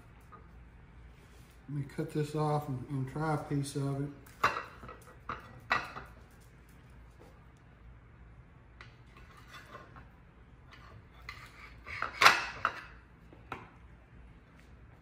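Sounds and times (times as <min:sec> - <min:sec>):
blade scraping against plate: 0:09.1 - 0:13.0.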